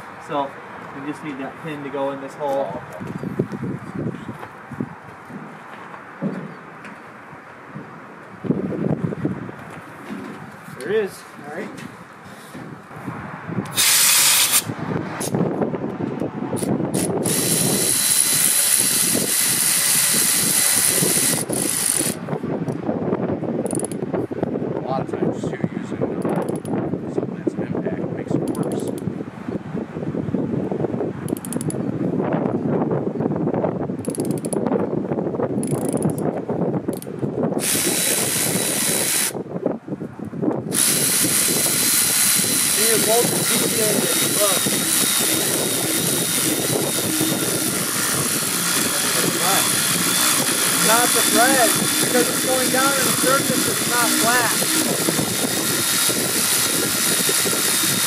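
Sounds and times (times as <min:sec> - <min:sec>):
cordless ratchet motor whine: 0:13.6 - 0:14.8, 0:16.6 - 0:22.2, 0:23.6 - 0:24.0, 0:34.0 - 0:34.6, 0:36.9 - 0:39.4, 0:40.7 - 0:58.0
loud steady hiss: 0:13.7 - 0:14.7, 0:40.8 - 0:58.0.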